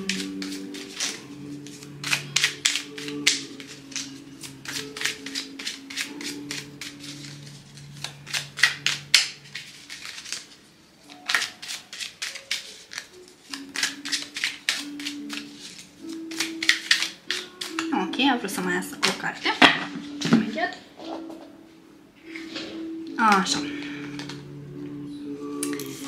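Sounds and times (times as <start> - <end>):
cards being shuffled: 0.0 - 17.9, 22.3 - 24.4
soft background music: 0.0 - 26.0.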